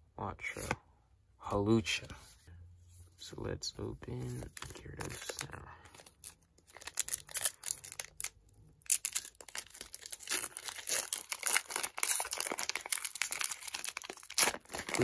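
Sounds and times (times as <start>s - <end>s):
foil wrapper tearing and crinkling: 6.1s - 15.0s.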